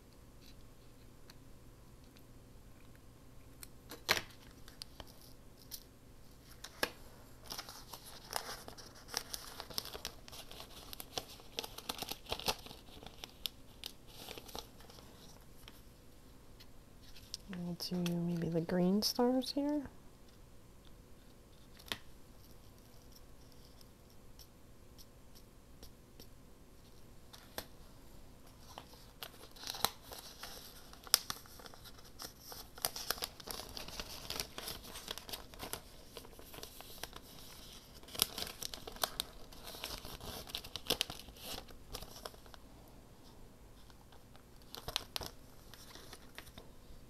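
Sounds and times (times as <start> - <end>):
paper crinkling and rustling: 3.9 - 15.9, 26.8 - 27.8, 28.4 - 42.6, 43.8 - 46.7.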